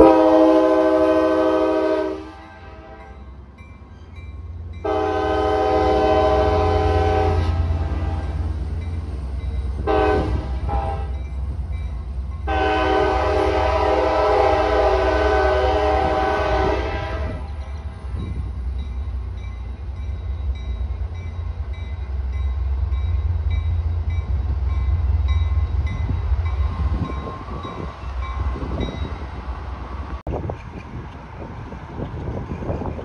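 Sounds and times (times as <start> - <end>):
train air horn chord: 0.0 - 3.2, 4.8 - 8.4, 9.8 - 11.1, 12.4 - 17.5
train low rumble: 0.0 - 33.0.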